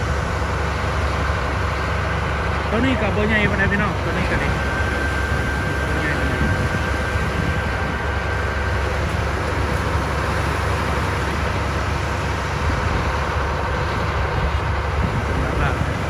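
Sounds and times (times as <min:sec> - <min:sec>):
bulldozer diesel engine rumbling: 0:00.0 - 0:16.0.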